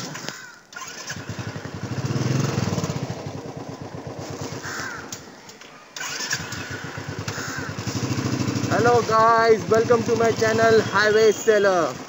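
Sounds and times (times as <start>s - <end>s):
motorcycle engine starting: 0.0s - 12.0s.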